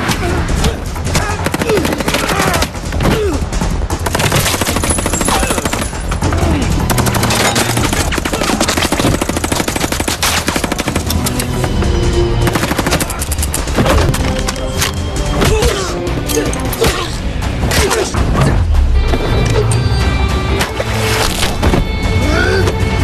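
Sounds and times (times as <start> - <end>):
action movie music score: 0.0 - 23.0
rapid automatic gunfire: 1.4 - 2.7, 3.9 - 6.2, 6.9 - 11.1.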